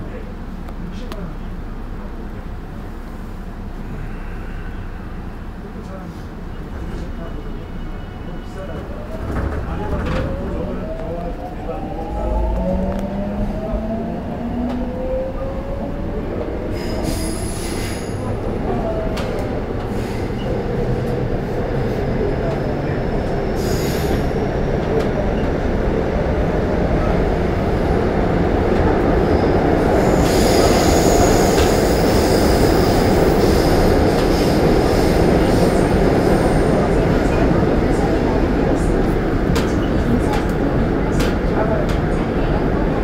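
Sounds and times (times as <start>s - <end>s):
subway train wheels rumbling: 0.0s - 43.0s.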